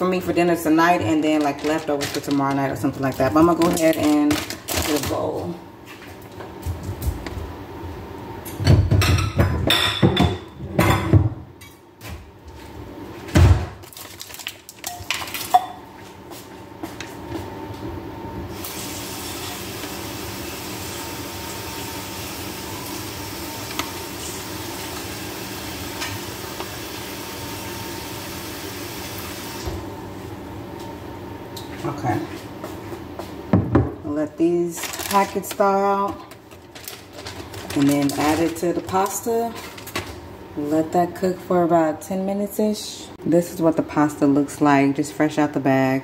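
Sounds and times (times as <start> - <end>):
dishes clattering: 8.6 - 11.4.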